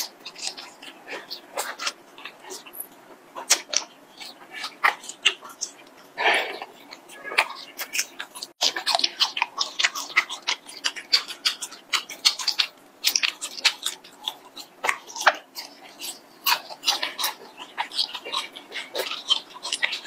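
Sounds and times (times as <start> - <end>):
close biting and chewing: 0.0 - 20.0.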